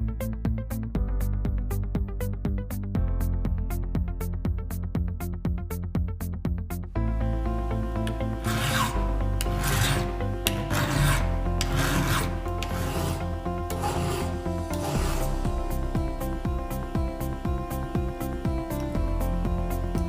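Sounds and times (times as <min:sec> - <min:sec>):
background music: 0:00.0 - 0:20.0
file rasping on steel: 0:08.1 - 0:15.5.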